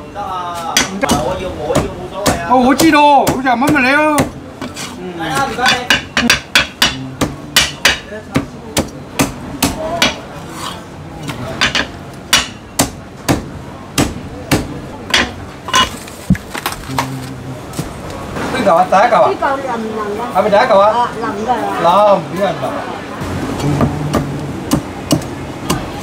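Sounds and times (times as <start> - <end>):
cleaver chopping on wooden block: 11.6 - 15.4, 23.8 - 25.9.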